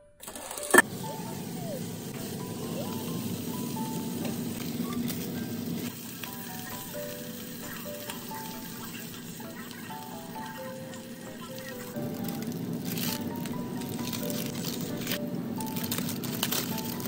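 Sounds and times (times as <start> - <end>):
fish sizzling in a frying pan: 0.8 - 17.0.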